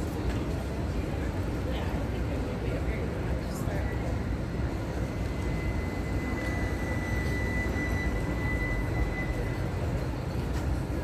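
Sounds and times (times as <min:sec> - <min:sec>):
city street rumble: 0:00.0 - 0:11.0
thin high whine: 0:04.2 - 0:10.6.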